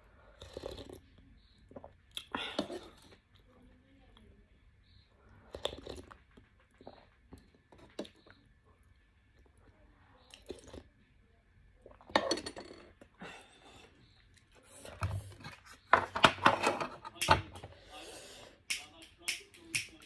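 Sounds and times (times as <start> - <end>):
chewing noodles: 0.2 - 3.5, 5.2 - 11.0.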